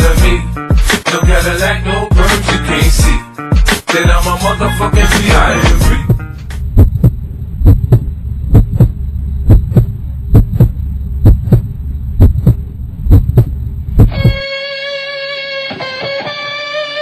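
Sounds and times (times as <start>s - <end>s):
heartbeat thumps: 5.3s - 14.4s
steady low hum: 5.4s - 14.5s.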